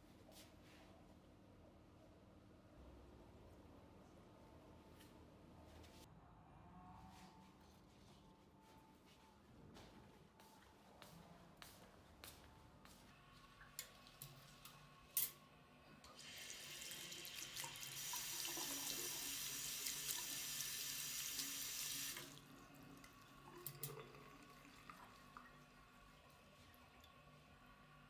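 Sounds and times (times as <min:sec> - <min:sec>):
tap water running: 0:16.0 - 0:27.9.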